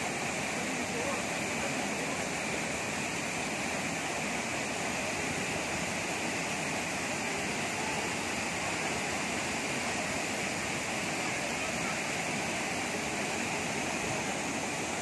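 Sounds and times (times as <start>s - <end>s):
waterfall pouring into pool: 0.0s - 15.0s.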